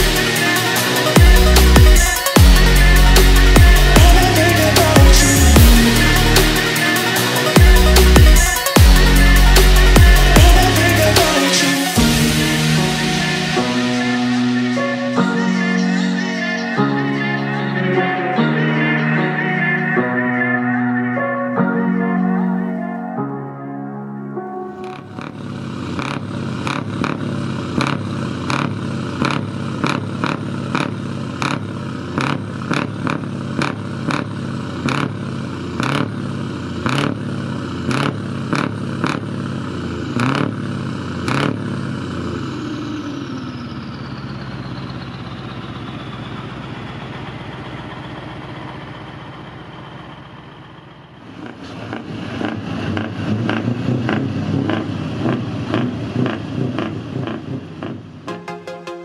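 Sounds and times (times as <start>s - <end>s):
truck engine idling: 0.0s - 23.2s, 24.8s - 58.3s
high whine: 0.0s - 27.1s.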